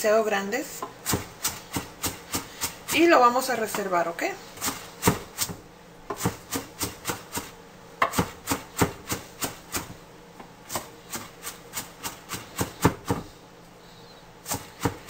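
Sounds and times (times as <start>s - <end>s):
knife chopping on wooden board: 0.8s - 2.8s, 4.6s - 9.9s, 10.7s - 13.3s, 14.5s - 15.0s.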